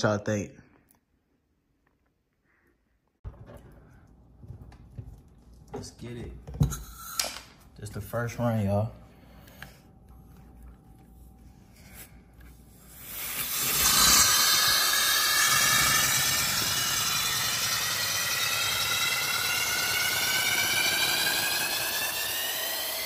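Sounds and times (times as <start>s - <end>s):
air hissing with rising whistle: 12.9s - 23.0s.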